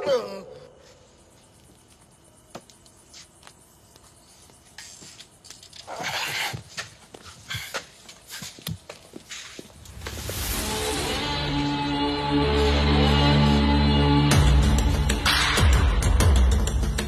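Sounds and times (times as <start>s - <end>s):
rustling and scuffling: 0.8s - 10.4s.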